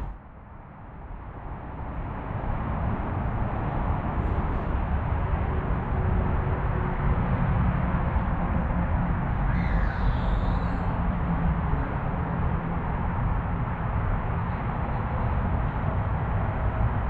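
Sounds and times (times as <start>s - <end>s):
low rumble and hiss: 0.0s - 17.0s
bird call: 9.5s - 10.8s.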